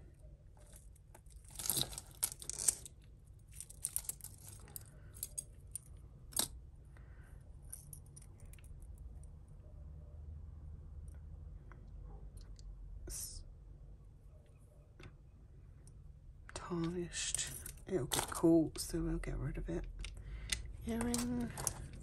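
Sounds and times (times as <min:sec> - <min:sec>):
metal jewellery clinking: 0:00.6 - 0:06.6, 0:07.6 - 0:08.9, 0:16.8 - 0:18.9, 0:20.0 - 0:22.0.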